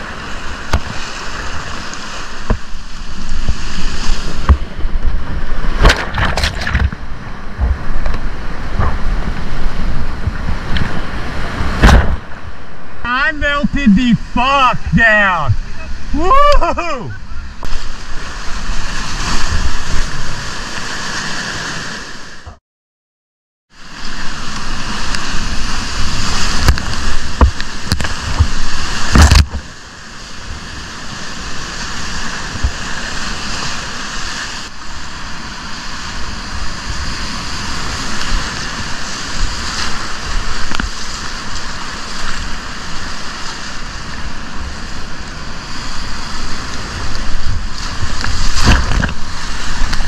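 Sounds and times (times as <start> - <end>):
loud hit on kayak: 11.7 - 12.4
whitewater rapids rushing: 13.0 - 22.4.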